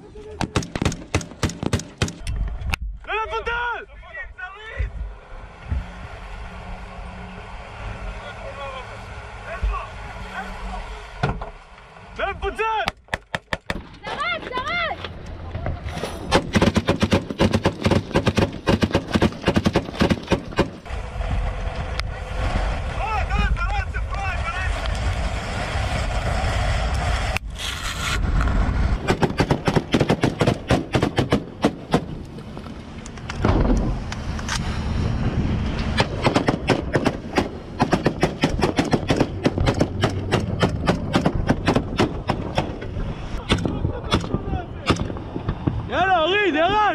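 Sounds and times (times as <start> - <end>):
boat engine: 5.0 - 12.2
rapid rifle gunfire: 16.3 - 20.8, 29.1 - 32.0, 36.0 - 42.7
machine gun firing bursts: 16.4 - 20.8, 29.1 - 32.0
wind noise: 19.9 - 46.8
boat engine rumble: 20.7 - 27.4.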